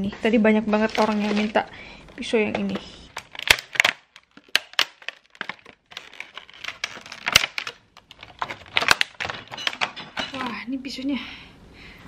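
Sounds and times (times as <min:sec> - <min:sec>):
plastic packaging crackling: 0:00.6 - 0:10.6.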